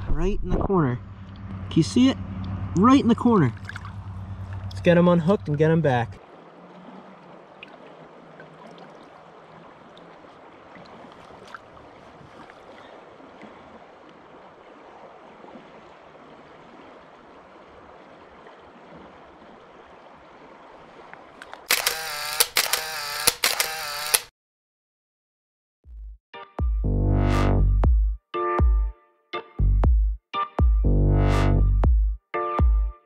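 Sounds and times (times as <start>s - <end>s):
river water flowing: 1.0s - 24.1s
loud music: 30.6s - 32.0s.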